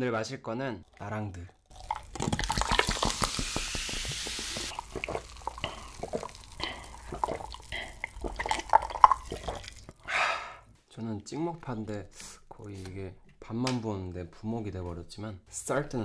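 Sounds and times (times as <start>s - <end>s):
cider pouring and fizzing: 0.8s - 10.0s
gulps and swallows: 0.8s - 10.1s.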